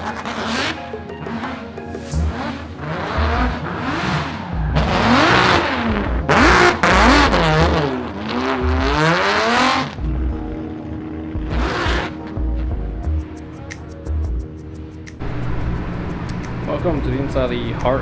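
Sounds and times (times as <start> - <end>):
car engine revving: 0.0 - 13.4.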